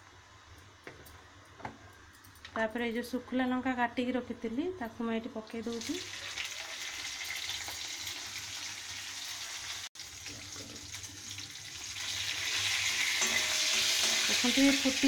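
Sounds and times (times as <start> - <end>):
spices sizzling in hot oil: 5.5 - 15.0.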